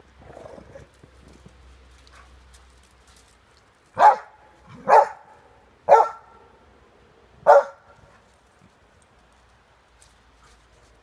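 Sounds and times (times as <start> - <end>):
dog barking: 4.0 - 5.3, 5.9 - 6.4, 7.4 - 7.9.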